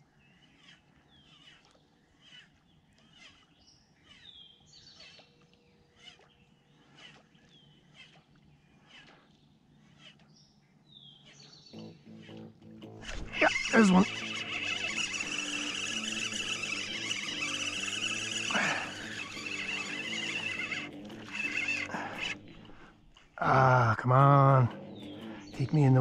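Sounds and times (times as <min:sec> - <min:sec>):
faint birdsong chirps: 0:00.0 - 0:26.0
bird downward-sliding call: 0:11.8 - 0:23.0.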